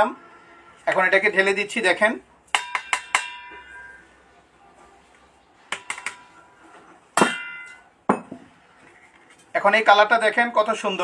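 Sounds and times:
ringing metal knock: 0:02.5 - 0:04.0.

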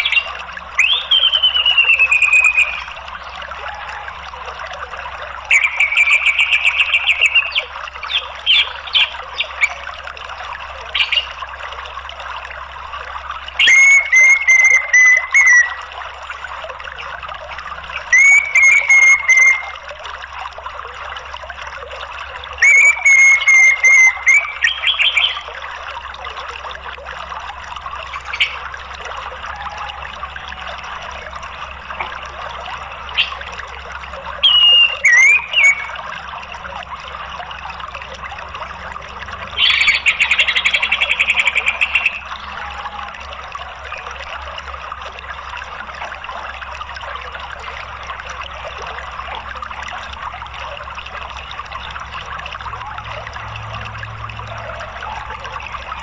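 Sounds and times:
thrush calls: 0:00.0 - 0:10.0, 0:13.5 - 0:17.1, 0:17.9 - 0:19.9, 0:22.3 - 0:25.8, 0:28.0 - 0:44.4, 0:54.4 - 0:56.0
running water: 0:00.0 - 0:56.0.

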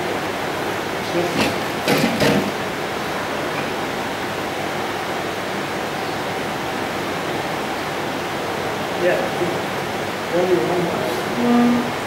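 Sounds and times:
room noise hiss: 0:00.0 - 0:12.0.

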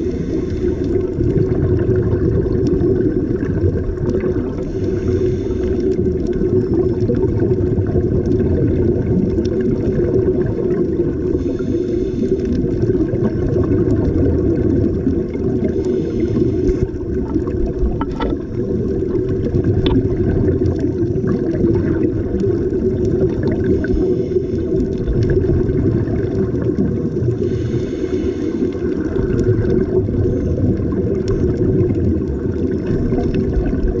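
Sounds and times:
diver exhale bubbling: 0:00.0 - 0:34.0
low underwater rumble: 0:00.0 - 0:34.0.

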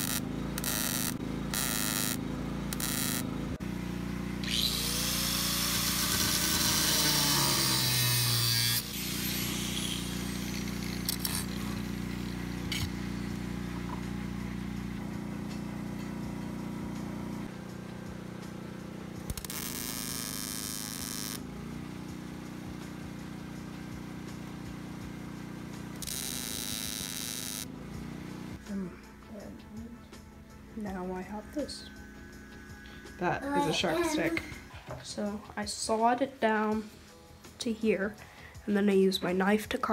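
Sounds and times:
angle grinder grinding steel: 0:00.0 - 0:03.5, 0:04.4 - 0:14.0, 0:26.0 - 0:27.7, 0:31.7 - 0:34.4.

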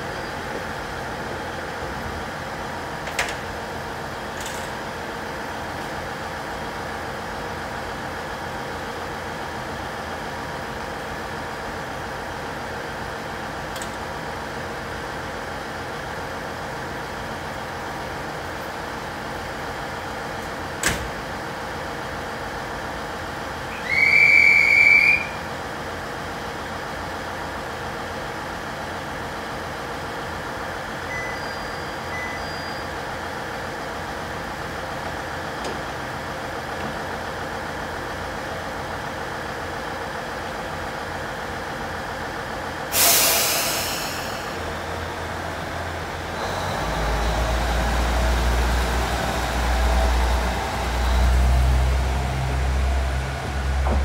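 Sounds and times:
diesel railcar engine: 0:00.0 - 0:54.0
air brakes hissing: 0:42.9 - 0:44.8.

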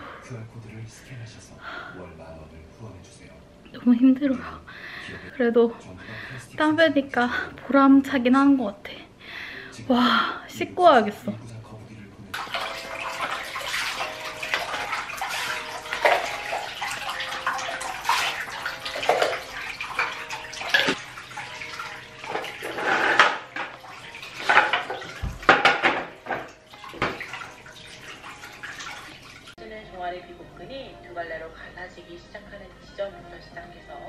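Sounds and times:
water running into bathtub: 0:12.3 - 0:29.6.

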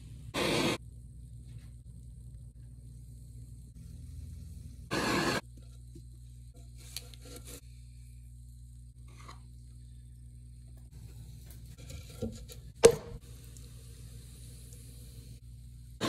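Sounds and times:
potter's wheel motor hum: 0:00.0 - 0:16.0
tool scraping spinning clay: 0:03.8 - 0:07.6, 0:11.0 - 0:12.8.

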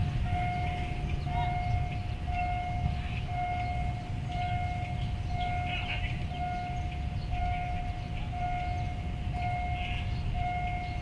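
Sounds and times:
level-crossing alarm beeping: 0:00.0 - 0:11.0
low steady rumble: 0:00.0 - 0:11.0.

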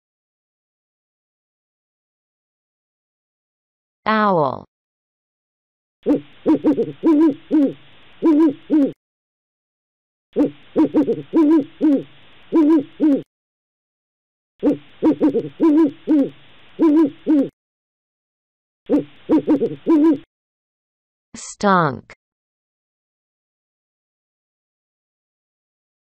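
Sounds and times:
owl hooting: 0:06.0 - 0:09.0, 0:10.4 - 0:13.3, 0:14.6 - 0:17.6, 0:18.9 - 0:20.3.

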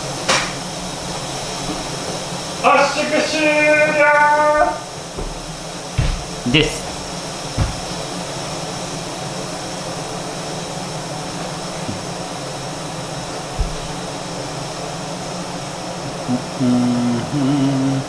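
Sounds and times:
soft low thump: 0:05.2 - 0:08.1, 0:13.6 - 0:14.1.

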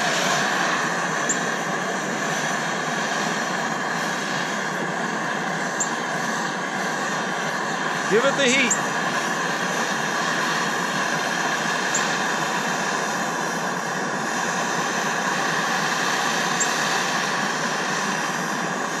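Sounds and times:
gas torch flame hissing: 0:00.0 - 0:19.0.

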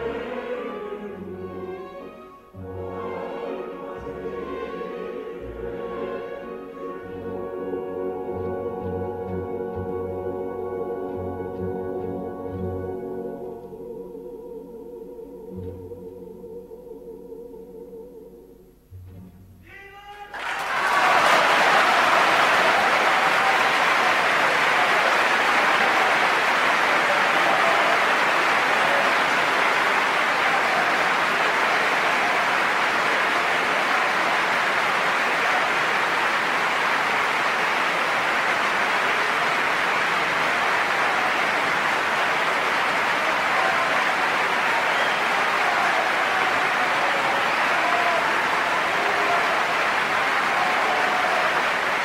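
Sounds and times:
audience applauding: 0:20.3 - 0:52.0.

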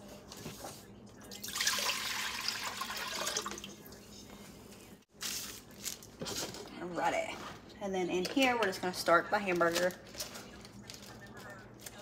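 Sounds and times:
water pouring into a pot: 0:01.4 - 0:03.7.

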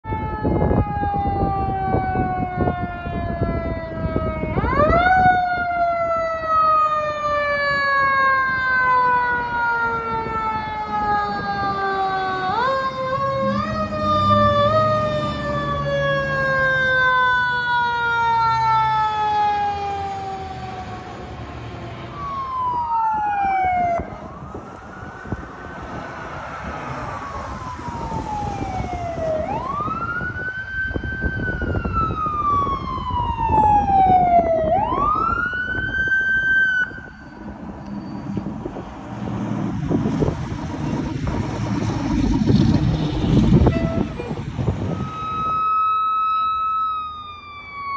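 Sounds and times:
siren sliding down in pitch: 0:00.0 - 0:47.9
wail siren rising and falling: 0:00.0 - 0:47.9
fire engine rumble passing: 0:00.1 - 0:47.9.

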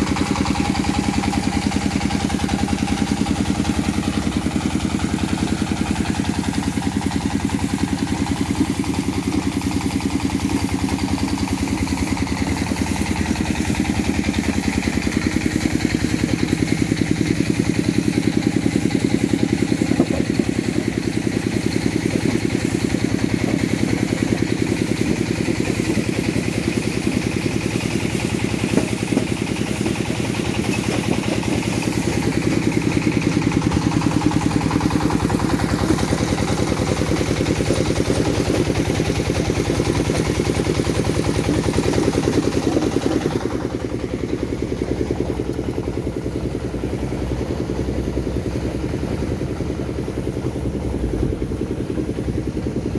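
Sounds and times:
diesel engine running under load: 0:00.0 - 0:52.9
stone crusher: 0:18.5 - 0:34.0.

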